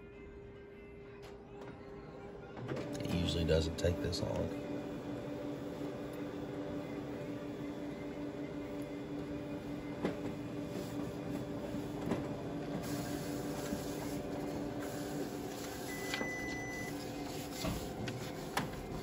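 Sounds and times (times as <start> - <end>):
printer mechanical hum: 1.2 - 19.0
paper feed clicks: 11.4 - 19.0.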